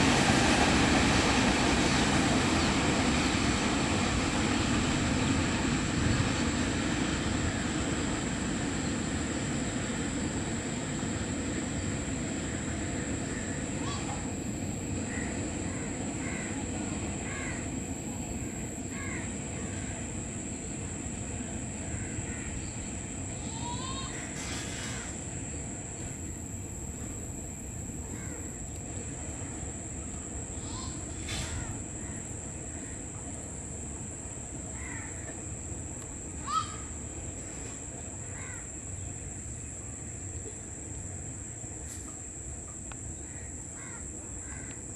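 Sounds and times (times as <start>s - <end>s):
distant freight train rumble: 0.0s - 44.9s
crow cawing: 15.1s - 16.5s, 34.8s - 35.2s, 38.4s - 38.6s, 43.3s - 44.8s.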